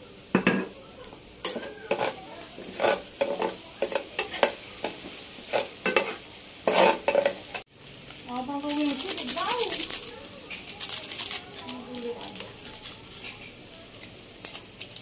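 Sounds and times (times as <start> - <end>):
onions sizzling in oil: 0.0 - 15.0
metal spatula scraping wok: 1.4 - 7.6.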